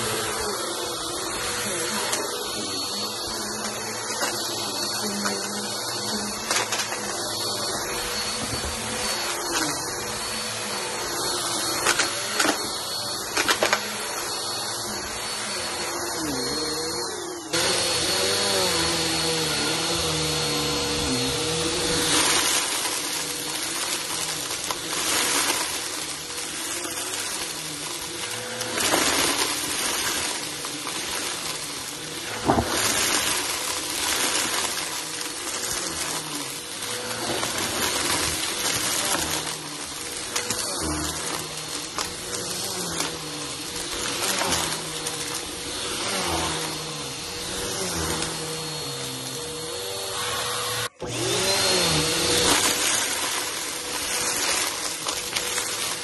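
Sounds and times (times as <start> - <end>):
vacuum cleaner running: 0.0 - 56.0.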